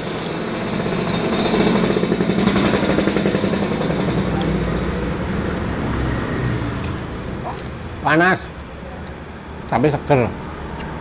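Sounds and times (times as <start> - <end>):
road traffic hum: 0.0 - 11.0.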